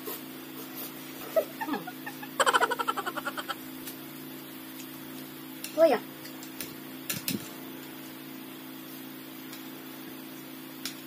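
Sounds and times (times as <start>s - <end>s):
steady low hum: 0.0s - 11.0s
high-pitched giggle: 1.2s - 3.6s.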